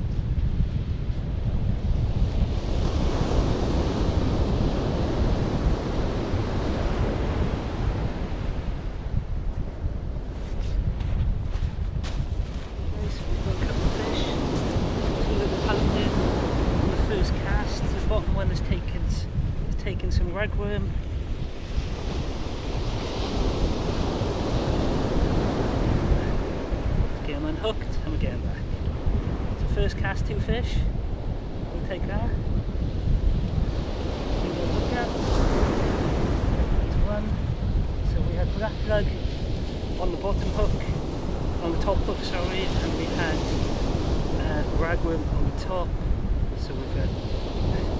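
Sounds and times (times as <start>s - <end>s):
wind rumble on microphone: 0.0s - 47.9s
surf washing on shingle beach: 0.1s - 47.9s
surf breaking on beach: 10.5s - 19.4s, 33.6s - 47.9s.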